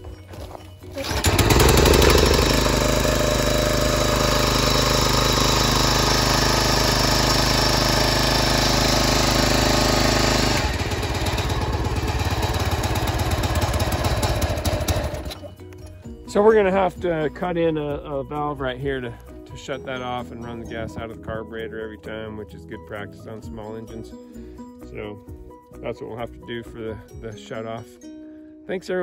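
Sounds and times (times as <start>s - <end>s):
small engine running: 0.9s - 15.5s.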